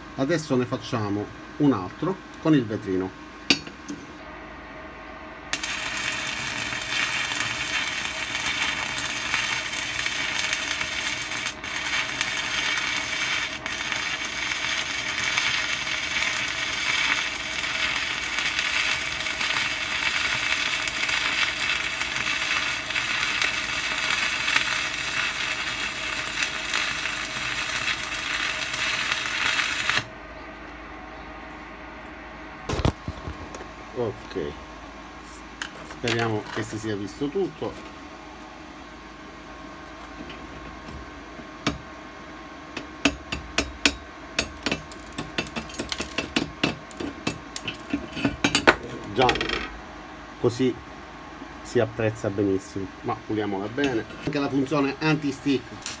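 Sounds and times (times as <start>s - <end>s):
welding arc crackling: 5.5s - 30.1s, 53.9s - 56.0s.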